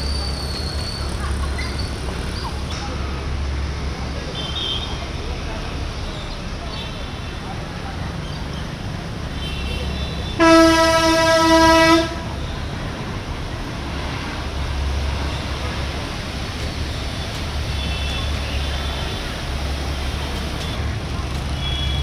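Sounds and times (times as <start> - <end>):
low engine rumble: 0.0 - 22.0
vehicles driving through water: 0.0 - 22.0
vehicle horn honk: 9.4 - 12.2.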